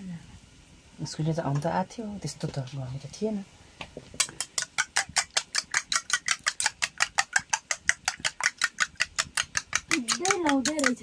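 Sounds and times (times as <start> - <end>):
spoon beating eggs in metal bowl: 4.2 - 11.0.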